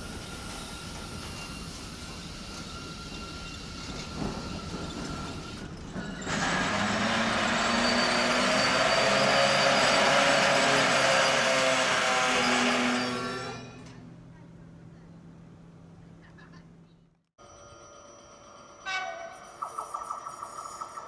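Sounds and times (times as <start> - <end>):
freight train brakes squealing: 0.0 - 14.1.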